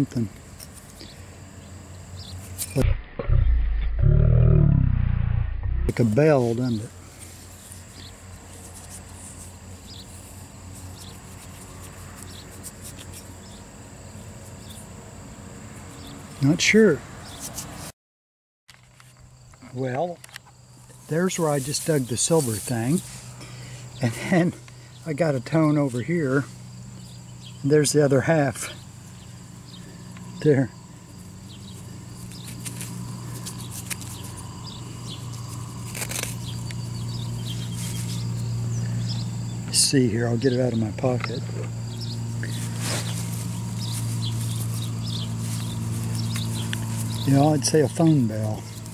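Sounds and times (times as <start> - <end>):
steady low hum: 1.1 - 14.0, 20.6 - 48.9
brief rustle: 35.8 - 36.8
fingers rubbing soil off metal: 42.4 - 48.9.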